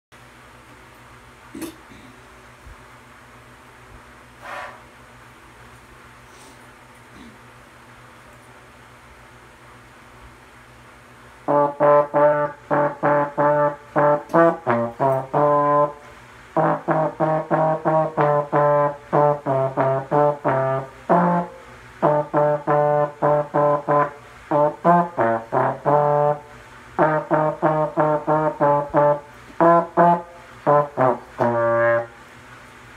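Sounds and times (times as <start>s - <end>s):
trombone playing a tune: 11.4s - 32.3s.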